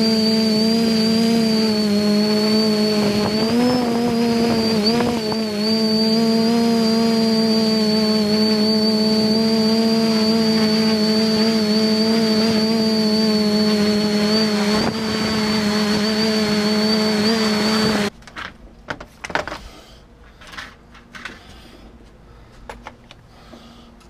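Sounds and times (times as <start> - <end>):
drone motors humming and whining: 0.0 - 18.1.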